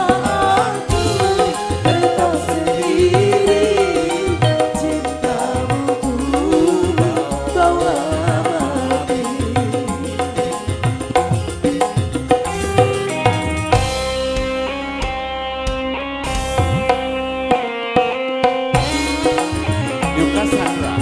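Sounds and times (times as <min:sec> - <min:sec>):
man and woman singing duet: 0:00.0 - 0:12.9, 0:18.8 - 0:21.0
keyboard and drums: 0:00.0 - 0:21.0.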